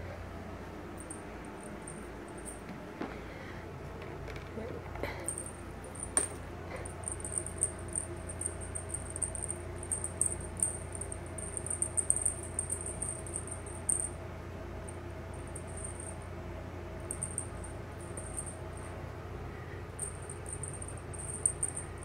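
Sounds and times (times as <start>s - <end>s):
cat wand toy chirring: 5.3s - 14.2s, 20.0s - 22.0s.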